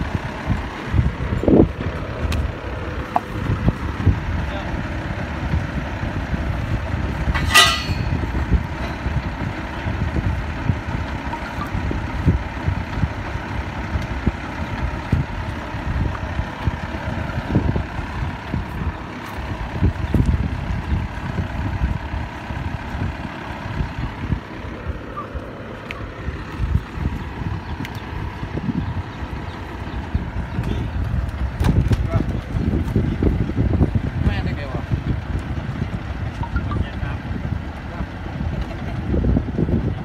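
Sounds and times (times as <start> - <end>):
drilling rig engine rumbling: 0.0 - 40.0
high-pitched metallic squeal: 7.4 - 8.2.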